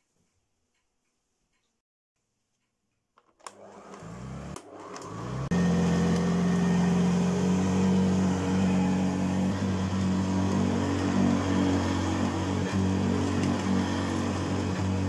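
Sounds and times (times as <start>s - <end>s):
vacuum cleaner motor running: 3.5s - 15.0s.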